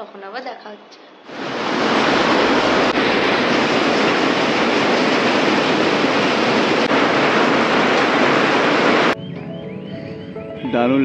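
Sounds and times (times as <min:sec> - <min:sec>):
heavy rain falling: 0:01.3 - 0:09.2.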